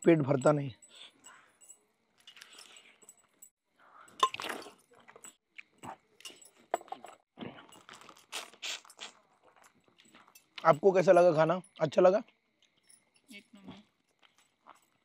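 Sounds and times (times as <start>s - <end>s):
metal bracelets clinking on steel plate: 0.0s - 8.2s, 8.9s - 12.0s, 12.6s - 15.0s
wet chewing and lip smacks: 7.7s - 10.7s.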